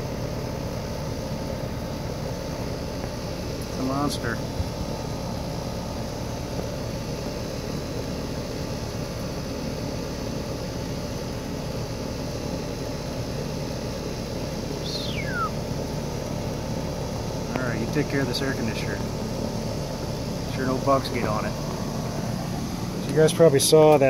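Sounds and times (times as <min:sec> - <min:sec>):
air conditioner fan hum: 0:00.0 - 0:24.0
high note sliding downward: 0:14.9 - 0:15.6.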